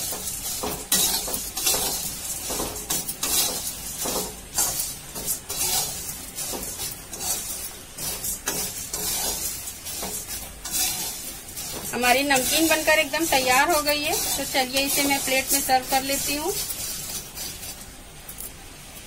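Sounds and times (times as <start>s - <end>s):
spatula scraping metal pan: 0.0s - 17.9s.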